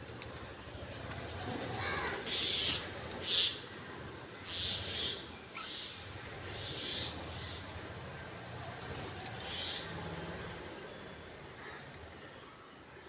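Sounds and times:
sparrows chirping hissy bursts: 4.4s - 7.8s, 9.4s - 9.9s.

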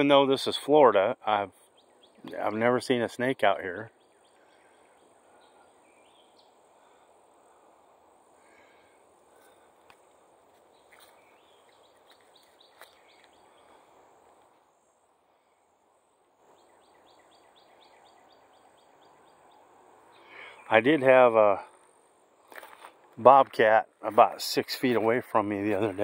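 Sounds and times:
high insect hum: 0.0s - 26.0s
faint bird calls: 3.5s - 20.8s.

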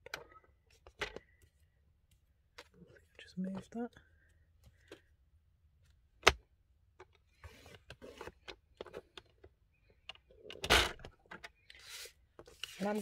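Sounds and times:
brushing paper rustle: 11.8s - 13.0s.

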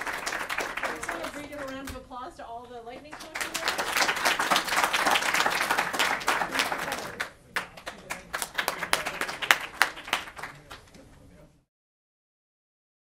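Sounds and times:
audience applauding: 0.0s - 2.0s, 3.1s - 11.0s.

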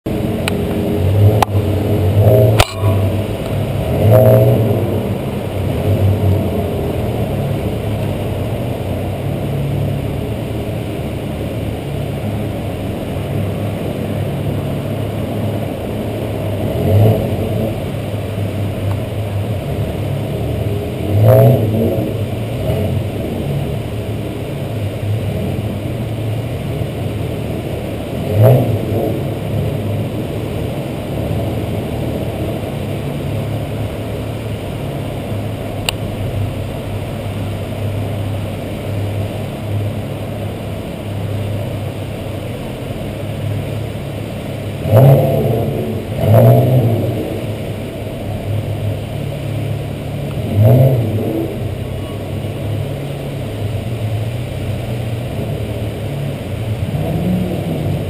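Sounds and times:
sports car engines idling: 0.0s - 58.0s
engine revving: 0.1s - 10.9s, 11.6s - 58.0s
sharp click: 2.6s - 3.0s.

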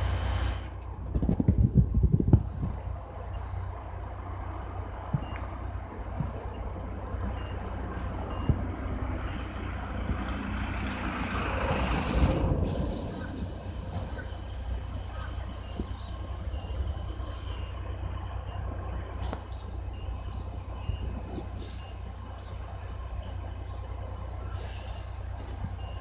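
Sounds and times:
diesel locomotive rumble: 0.0s - 26.0s
hiss: 21.4s - 22.0s, 24.5s - 25.4s.

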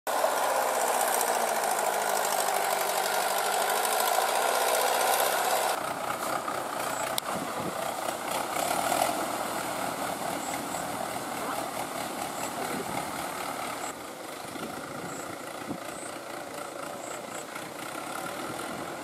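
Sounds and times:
rough tractor engine: 0.1s - 19.0s
tractor diesel engine running: 0.1s - 19.0s
wheels churning through mud: 0.1s - 19.0s.

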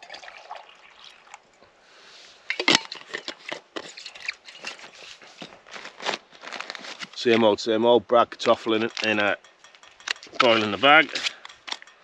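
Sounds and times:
light clicks and crinkles: 2.5s - 7.6s, 8.3s - 12.0s.

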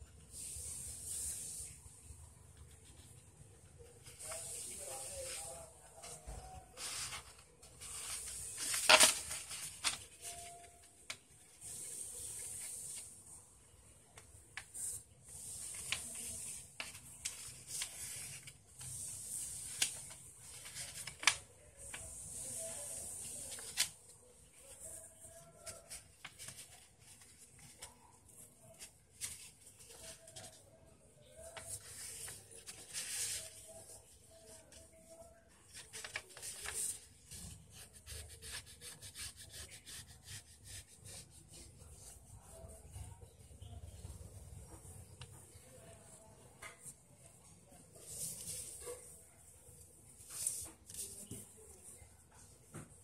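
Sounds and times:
paper rustling as folded: 2.6s - 13.3s, 14.2s - 43.1s, 47.7s - 53.0s
paper crinkling: 3.8s - 13.2s, 14.2s - 43.1s.

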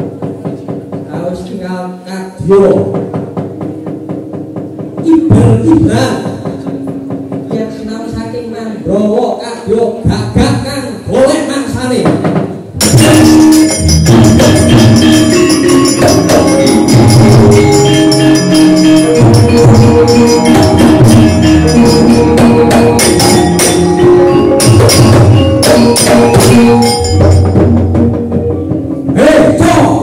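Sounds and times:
gamelan music: 12.8s - 29.3s.

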